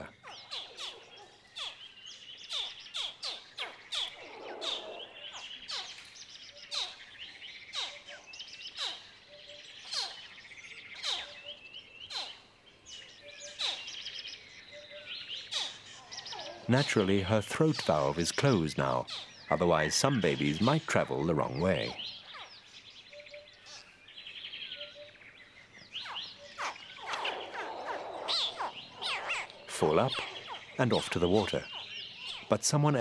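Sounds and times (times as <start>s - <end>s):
faint high twittering: 0.0s - 33.0s
crocodile hatchlings chirping: 2.5s - 6.0s, 26.0s - 33.0s.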